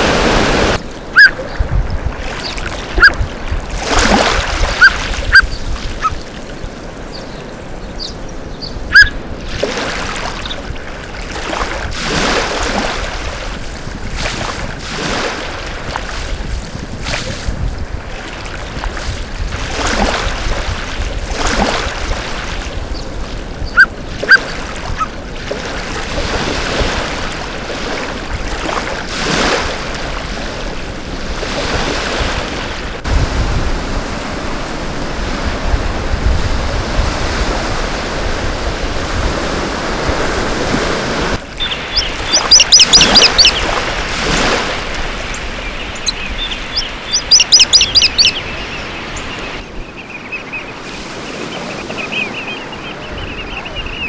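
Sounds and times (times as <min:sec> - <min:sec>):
waves washing onto a beach: 0:00.0 - 0:07.8, 0:08.4 - 0:49.8
wind: 0:00.0 - 0:54.0
rapid high bird calls: 0:41.6 - 0:43.7, 0:45.2 - 0:54.0.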